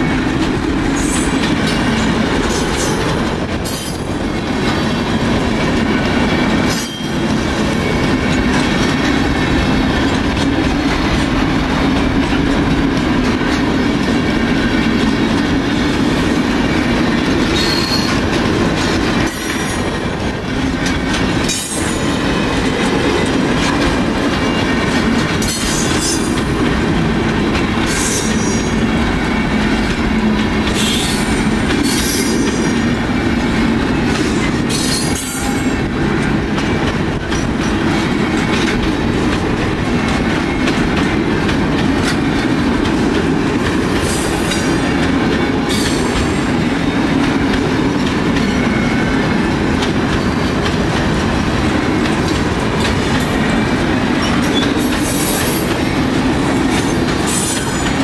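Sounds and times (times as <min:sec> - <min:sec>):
freight wagons rumbling on rails: 0:00.0 - 0:58.0
high-pitched wheel squeals: 0:17.6 - 0:18.2.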